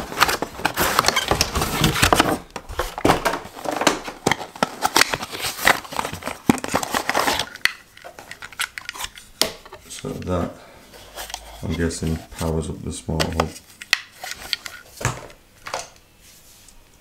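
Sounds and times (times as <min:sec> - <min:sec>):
cardboard rustling and scraping: 0:00.0 - 0:09.1, 0:09.8 - 0:12.6.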